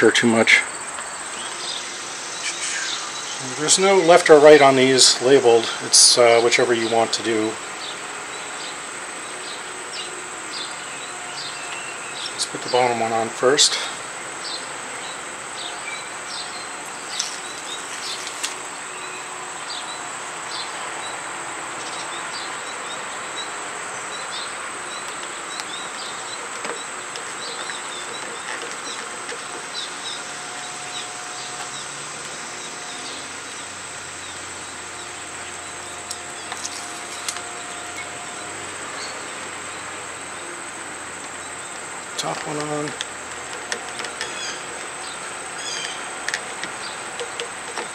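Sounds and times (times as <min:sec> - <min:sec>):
high-pitched insect drone: 0:00.4 - 0:47.9
plastic covers clicking: 0:42.2 - 0:47.9.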